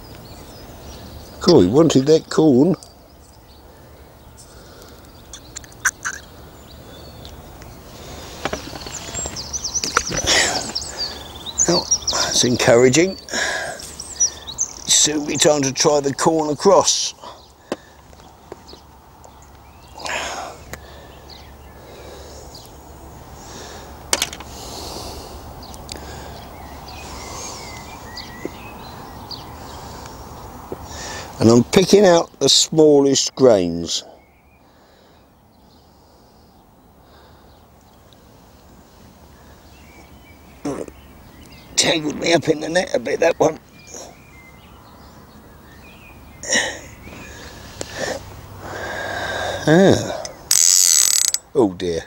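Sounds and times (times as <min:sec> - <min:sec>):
songbird chirping: 0:00.0 - 0:52.0
sharp clicks: 0:04.8 - 0:06.3, 0:50.2 - 0:51.5.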